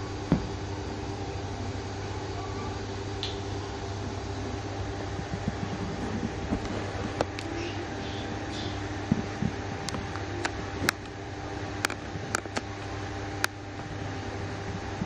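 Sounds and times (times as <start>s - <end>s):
steady machine hum: 0.0s - 15.0s.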